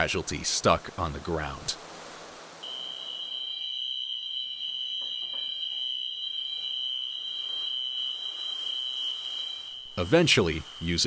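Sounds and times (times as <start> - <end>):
electronic alarm tone: 2.6 - 11.0.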